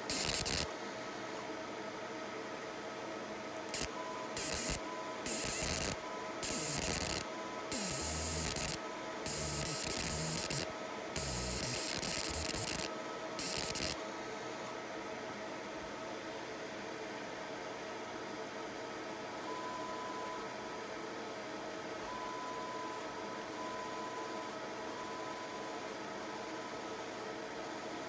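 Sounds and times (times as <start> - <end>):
laser engraving hiss bursts: 0.0 - 0.7, 3.6 - 14.0
machine hum: 0.0 - 1.4, 3.6 - 14.7.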